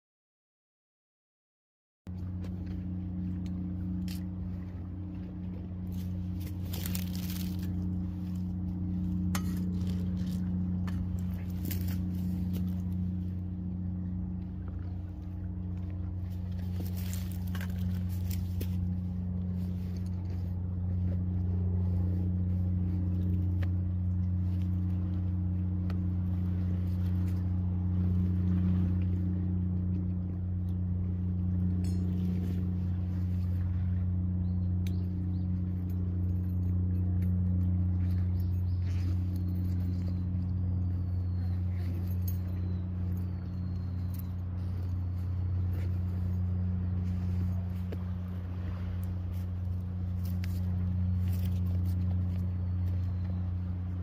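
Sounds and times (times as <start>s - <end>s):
steady low hum: 2.1s - 54.0s.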